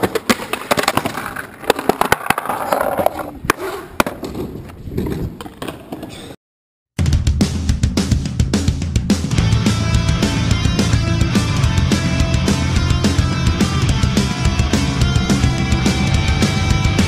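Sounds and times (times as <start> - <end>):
skateboard clacks and knocks: 0.0 - 6.3
skateboard wheels rolling on concrete: 0.0 - 6.4.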